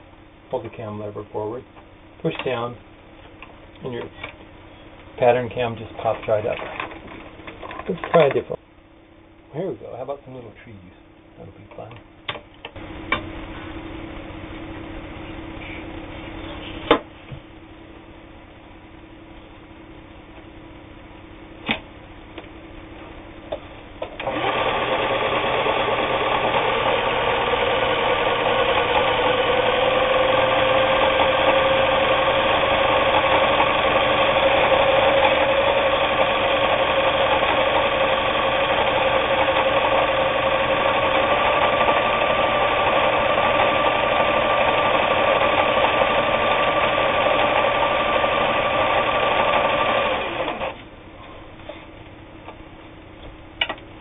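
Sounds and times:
sewing machine motor whine: 24.2s - 50.8s.

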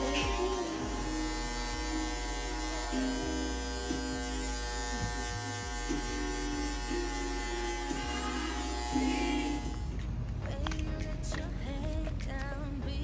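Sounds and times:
electric hair clippers buzzing: 0.0s - 10.2s.

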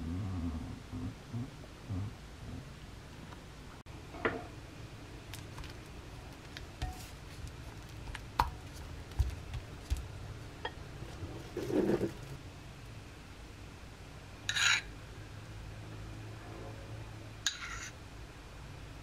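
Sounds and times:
spatula scraping butter in bowl: 14.5s - 14.8s, 17.5s - 17.9s.

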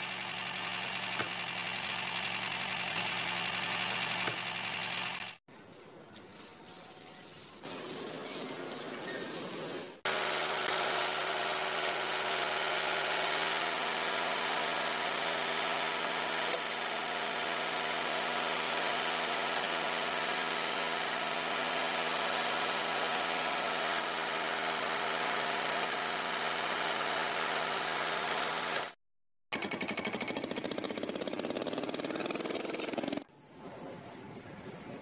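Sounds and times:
motor running steadily: 0.0s - 5.4s, 10.0s - 29.0s.

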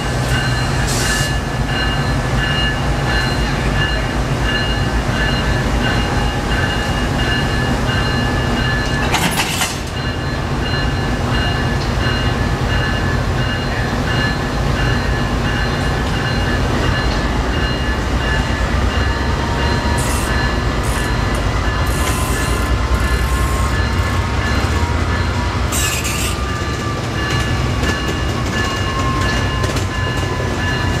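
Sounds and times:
diesel locomotive idling: 9.8s - 31.0s.

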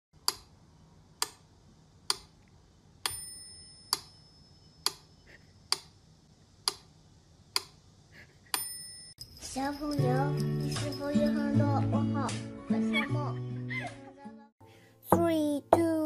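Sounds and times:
metronome bell ding: 3.1s - 4.8s, 8.6s - 11.8s.

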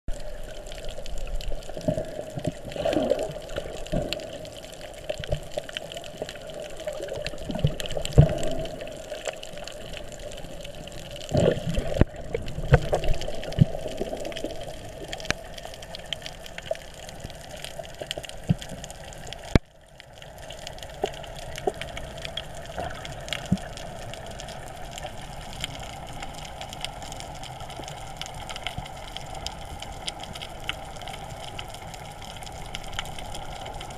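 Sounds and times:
muffled underwater rushing: 0.1s - 19.6s.

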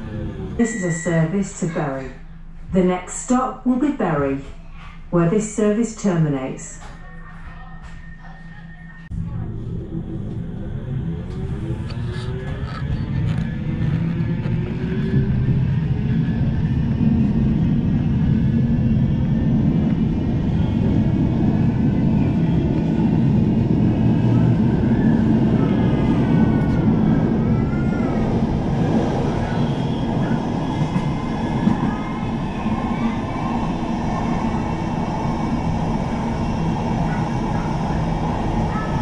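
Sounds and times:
tram wheels rumbling on rail: 6.6s - 39.0s.

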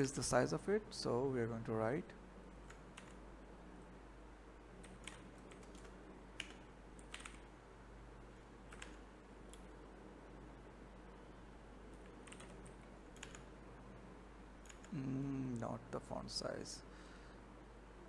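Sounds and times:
low steady hum: 0.0s - 18.0s
computer keyboard keystrokes: 2.6s - 3.2s, 4.8s - 7.5s, 8.7s - 9.6s, 12.0s - 13.5s, 14.6s - 14.9s.

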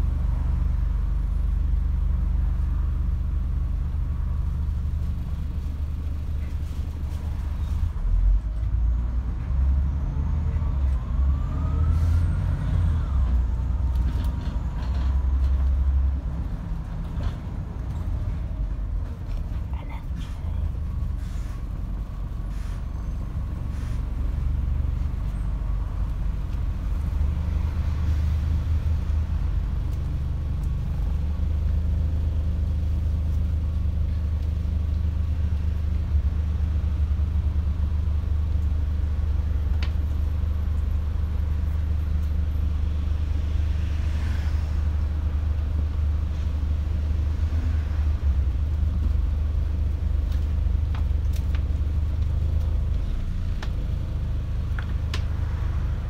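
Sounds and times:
bus diesel engine idling: 17.8s - 27.2s.

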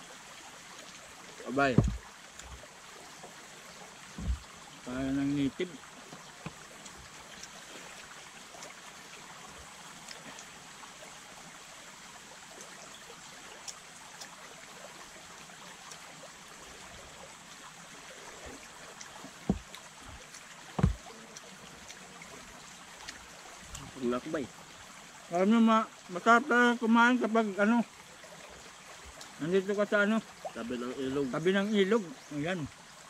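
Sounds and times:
stream flowing: 0.0s - 33.0s
dull thumps: 1.6s - 2.0s, 4.1s - 4.5s, 19.4s - 20.2s, 20.8s - 21.0s.

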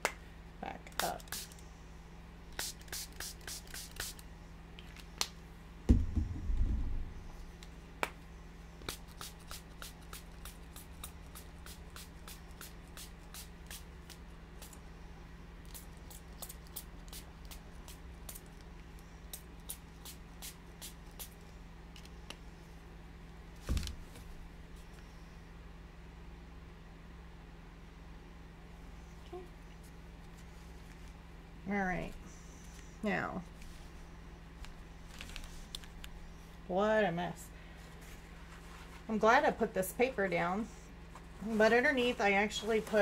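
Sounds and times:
dull thump: 5.9s - 7.1s, 23.6s - 24.0s.

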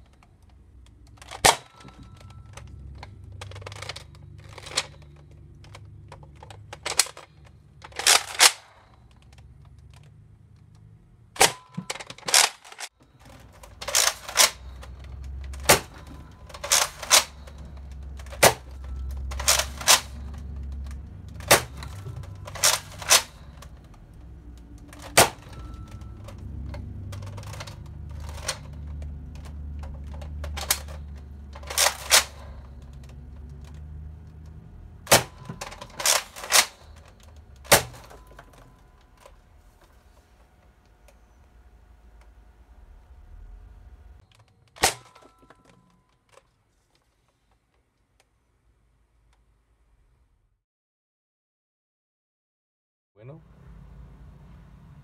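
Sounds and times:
balls hitting target: 13.3s - 34.1s.

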